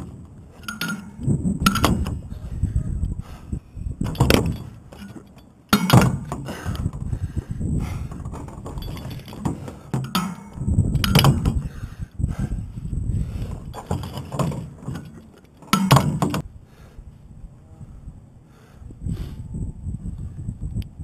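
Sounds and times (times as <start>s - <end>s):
hardware clinking against steel: 0.0s - 2.1s, 4.0s - 6.5s, 8.6s - 11.4s
wind buffeting microphone: 0.0s - 5.1s, 5.9s - 15.1s, 16.2s - 21.0s.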